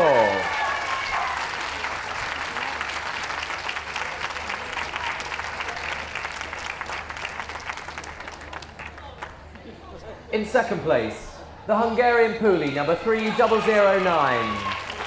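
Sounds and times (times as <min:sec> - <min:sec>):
audience applauding: 0:00.0 - 0:09.5, 0:12.6 - 0:15.0.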